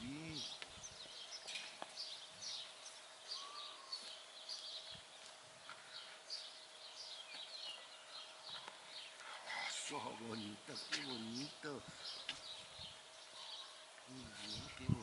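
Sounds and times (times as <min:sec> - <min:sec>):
faint steady hum: 0:00.0 - 0:15.0
small birds chirping: 0:00.0 - 0:15.0.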